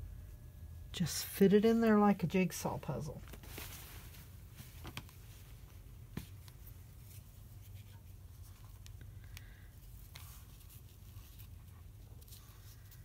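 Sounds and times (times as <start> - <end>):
low steady hum: 0.0 - 13.0
fabric rustling: 3.2 - 8.9, 9.7 - 13.0.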